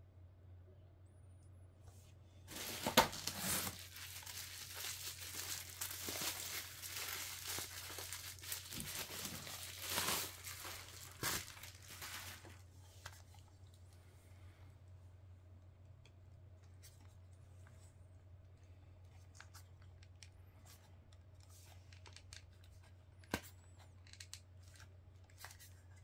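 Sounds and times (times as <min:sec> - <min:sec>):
plastic packaging crinkling: 0:02.5 - 0:13.4.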